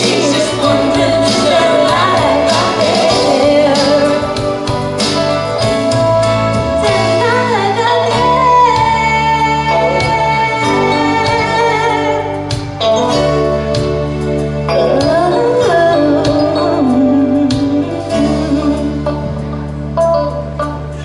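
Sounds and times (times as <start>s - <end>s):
woman singing: 0.0s - 4.6s, 6.8s - 12.5s, 14.7s - 19.4s
instrumental accompaniment: 0.0s - 21.0s.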